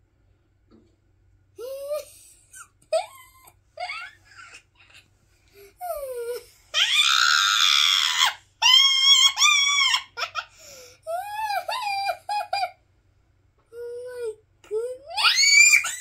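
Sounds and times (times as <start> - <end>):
girl shrieking with laughter: 6.8 - 10.5, 11.1 - 12.8, 15.1 - 16.0.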